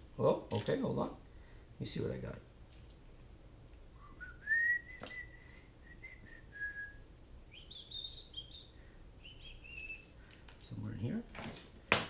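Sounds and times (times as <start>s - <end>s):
person whistling: 4.0s - 8.6s, 9.2s - 10.1s.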